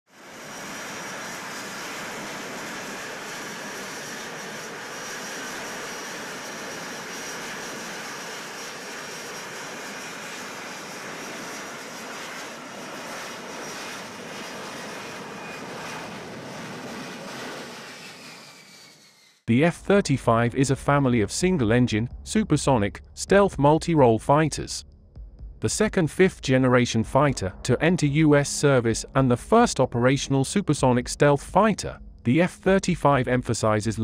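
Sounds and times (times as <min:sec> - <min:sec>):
jet engine roar: 0:00.1 - 0:19.4.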